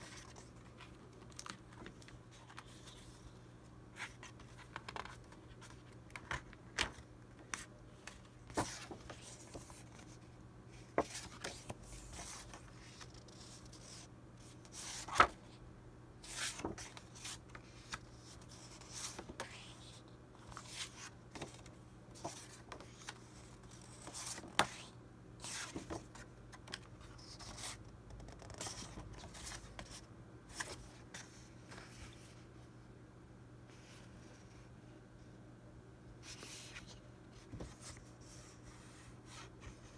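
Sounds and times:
paper rustling: 4.0s - 10.2s.

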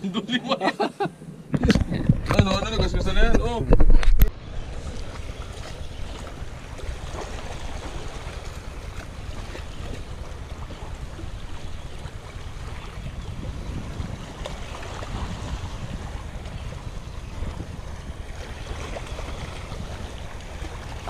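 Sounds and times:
wind buffeting microphone: 1.2s - 21.0s
waves washing against rocks: 5.2s - 21.0s.

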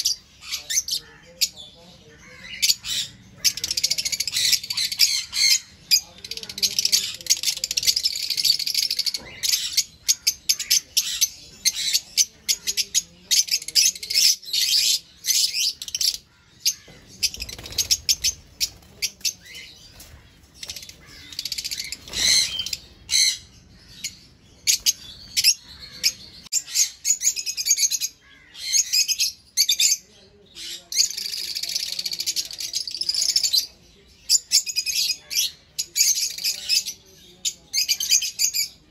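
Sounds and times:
lovebirds chirping and squawking: 0.0s - 38.9s.

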